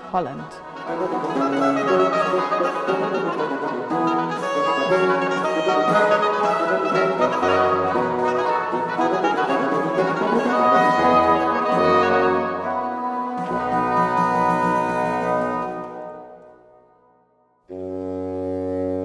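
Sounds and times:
bassoon bass line: 0.0s - 16.3s, 17.7s - 19.0s
oboes playing a melody: 0.0s - 16.6s, 17.7s - 19.0s
tenor oboe: 0.0s - 16.8s, 17.7s - 19.0s.

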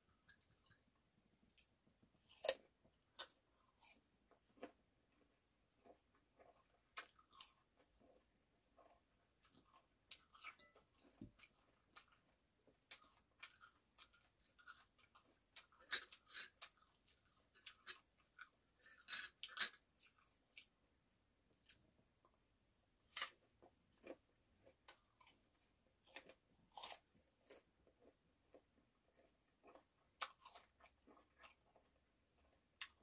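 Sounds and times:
chewing with mouth smacks: 1.5s - 19.0s.

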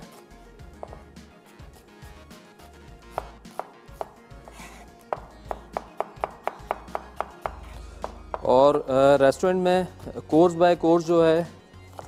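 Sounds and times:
soft background music: 0.0s - 12.0s
knife chopping onion on board: 3.1s - 8.6s.

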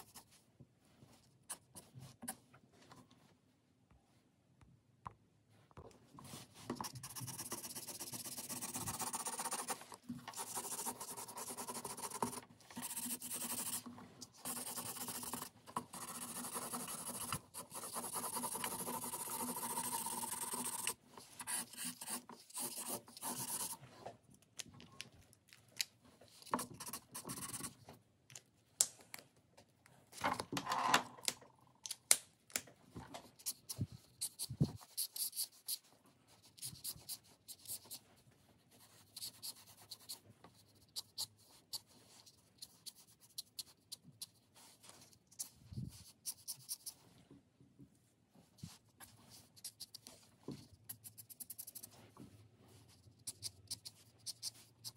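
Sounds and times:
felt-tip markers scratching on paper: 6.3s - 23.8s, 26.4s - 27.8s, 33.3s - 38.0s, 38.7s - 47.0s, 48.6s - 52.1s, 52.7s - 54.9s
fine-tip pen hatching lines: 53.2s - 54.9s.

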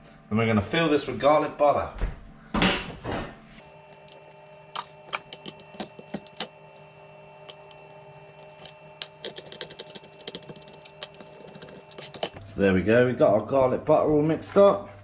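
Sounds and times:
steady low hum: 3.5s - 13.1s
garlic skin crackling: 3.6s - 12.4s.

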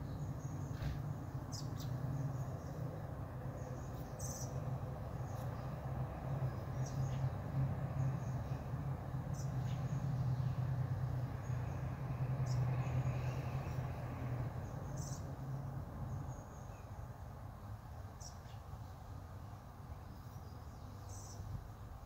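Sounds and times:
bird chirps: 0.0s - 2.8s.

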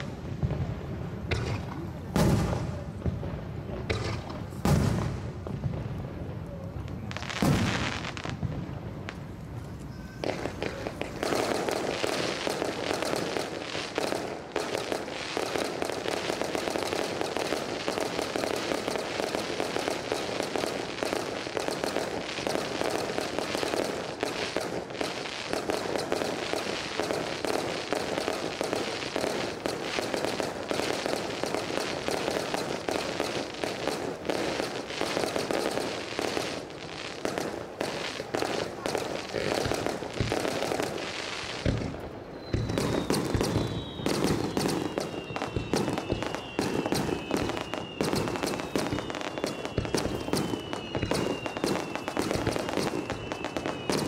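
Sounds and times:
fireworks bursting: 0.0s - 54.0s.

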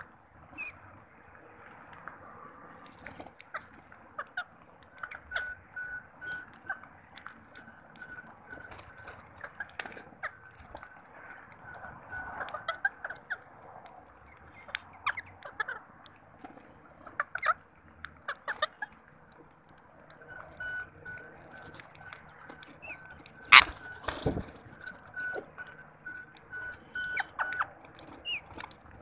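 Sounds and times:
birds pecking: 0.0s - 29.0s
brief bird calls: 20.6s - 24.4s.

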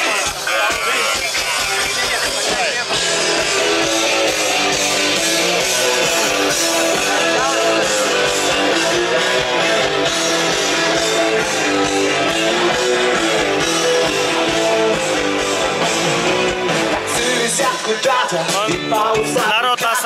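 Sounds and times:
live rock band playing: 0.0s - 20.0s
strummed guitar: 0.0s - 20.0s.

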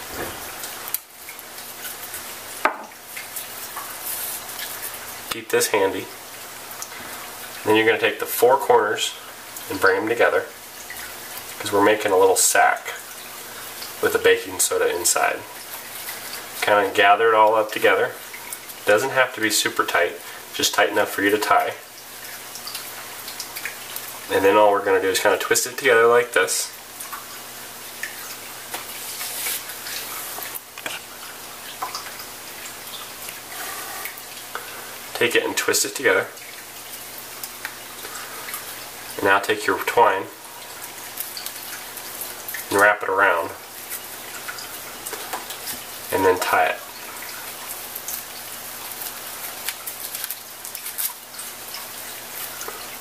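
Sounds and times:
steady hiss: 0.0s - 22.2s, 27.5s - 31.6s, 32.2s - 36.4s.

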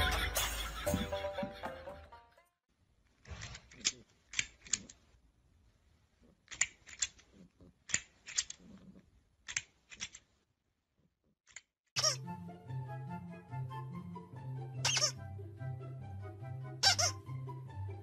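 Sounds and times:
toy jaws clacking shut: 3.2s - 5.0s, 6.4s - 8.7s, 9.4s - 10.3s.

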